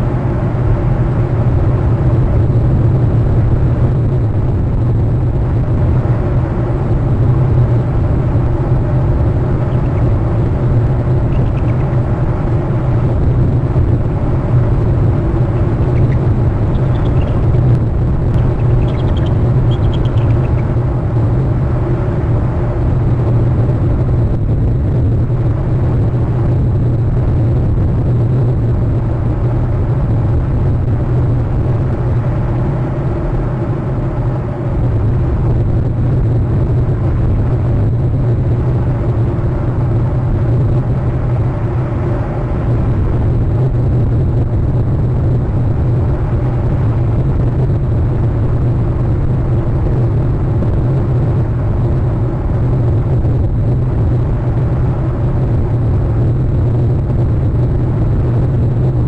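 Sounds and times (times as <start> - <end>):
low rumble and hum: 0.0 - 59.0
eagle trills: 9.6 - 12.2, 15.2 - 20.8.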